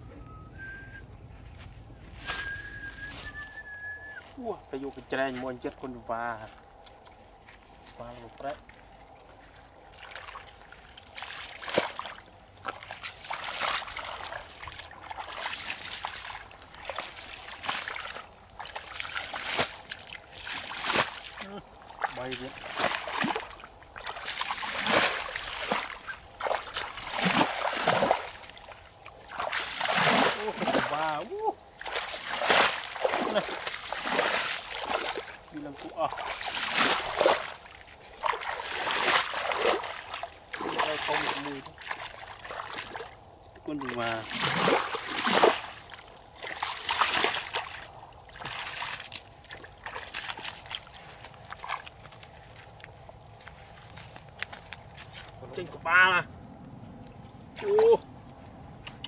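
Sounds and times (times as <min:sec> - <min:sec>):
wet steps in soft mud: 0:01.0 - 0:59.0
feet splashing through puddle: 0:01.5 - 0:55.6, 0:57.1 - 0:59.0.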